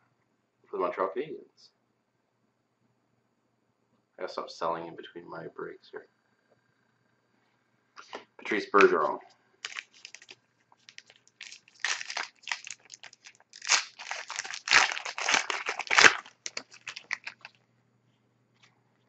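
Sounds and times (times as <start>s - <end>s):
card pack wrapper crinkling and tearing: 9.6s - 17.5s.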